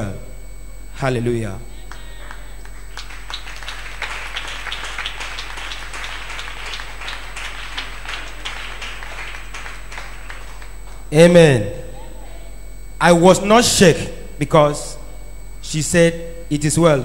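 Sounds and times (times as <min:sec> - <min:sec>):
congregation applauding: 0:01.9 - 0:11.1.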